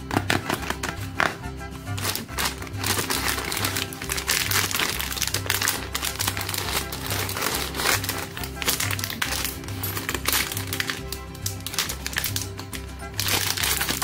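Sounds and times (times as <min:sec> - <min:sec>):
music with pulsing bass: 0:00.0 - 0:14.0
plastic packaging crinkling: 0:02.0 - 0:14.0.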